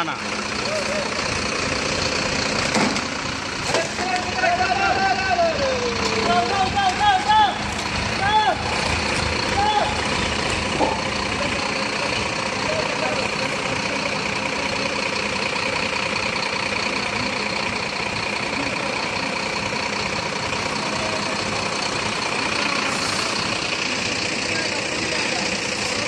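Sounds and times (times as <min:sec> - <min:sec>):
diesel truck engine idling: 0:00.0 - 0:26.0.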